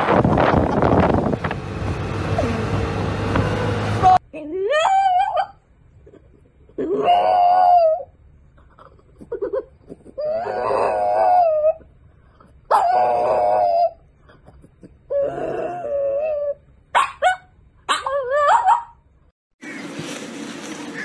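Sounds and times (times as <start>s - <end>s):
dog whining: 4.8s - 8.1s, 8.8s - 11.9s, 12.7s - 16.6s
dog howling: 6.8s - 8.1s, 10.2s - 11.8s, 12.7s - 14.0s.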